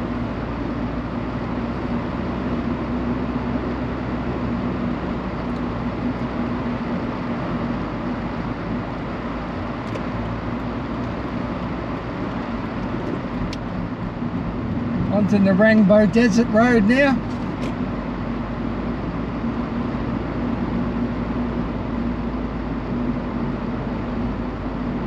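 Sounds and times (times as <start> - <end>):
car road and engine noise: 0.0 - 25.0.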